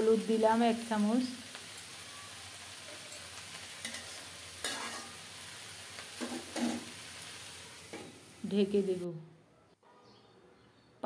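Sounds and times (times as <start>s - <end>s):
vegetables sizzling in oil: 0.0s - 9.0s
metal spatula scraping pan: 3.8s - 5.2s, 6.2s - 6.9s.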